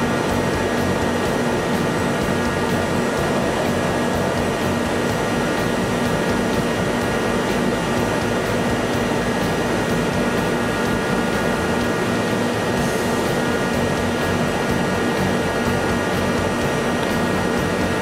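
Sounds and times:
lathe machine hum: 0:00.0 - 0:18.0.

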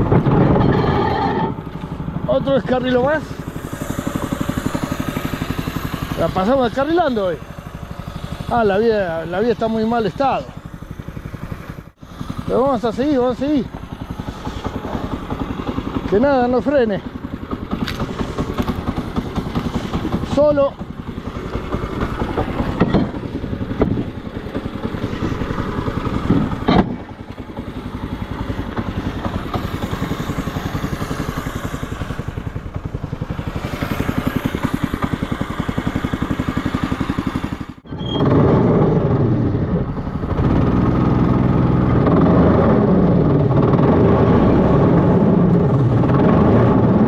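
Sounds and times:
rail cart engine running: 0:00.0 - 0:47.0
sharp knocks: 0:17.7 - 0:25.0, 0:26.1 - 0:27.4.

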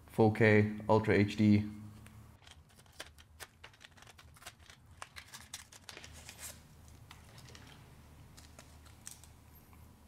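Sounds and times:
plastic blister pack crinkling: 0:02.4 - 0:09.4.

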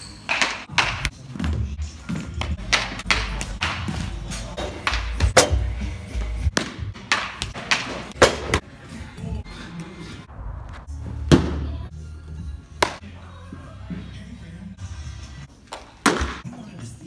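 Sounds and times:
background music: 0:00.0 - 0:17.0
baseball knocks and thuds: 0:02.3 - 0:08.6, 0:11.2 - 0:11.8, 0:12.8 - 0:13.0, 0:15.7 - 0:16.4.

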